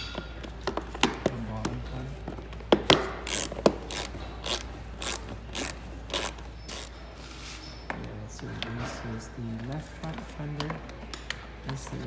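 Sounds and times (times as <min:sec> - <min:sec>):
socket ratchet clicking: 0:03.2 - 0:06.9.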